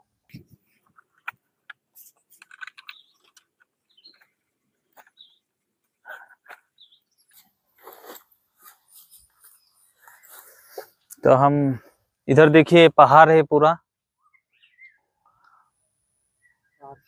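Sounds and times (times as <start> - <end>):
small knocks and clicks: 0.3 - 5.2
zipper rasps: 7.7 - 8.8.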